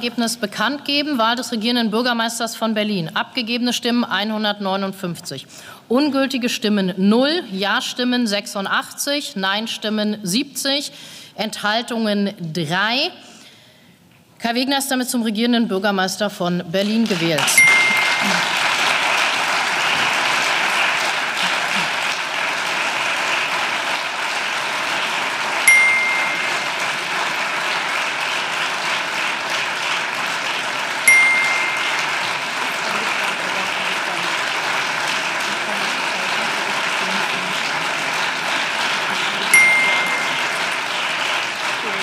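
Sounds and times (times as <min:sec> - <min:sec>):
crowd applause: 0:17.4 - 0:42.0
single dings: 0:17.6 - 0:18.5, 0:25.7 - 0:26.9, 0:31.1 - 0:32.4, 0:39.5 - 0:40.6.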